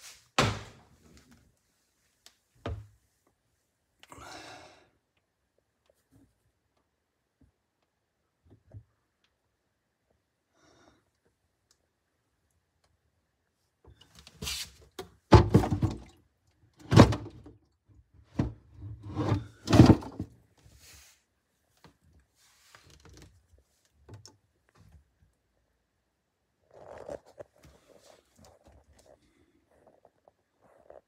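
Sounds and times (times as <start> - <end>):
thunks and knocks in cabinet: 0.4 - 0.8, 15.3 - 16.1, 16.8 - 17.4, 18.3 - 20.3
rustling and scraping: 14.2 - 14.8, 18.7 - 24.1, 26.7 - 31.0.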